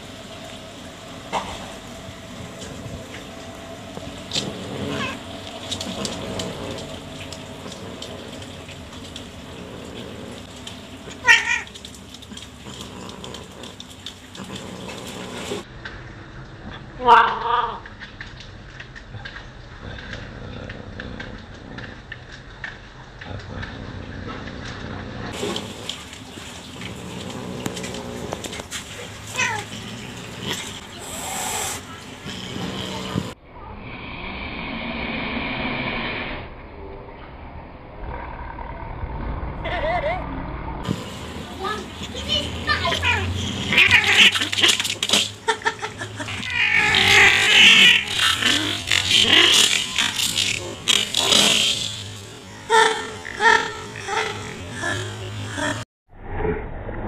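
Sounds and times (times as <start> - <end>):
cat yowling: 4.8 - 5.2, 11.2 - 11.7, 43.0 - 44.8, 46.2 - 50.4.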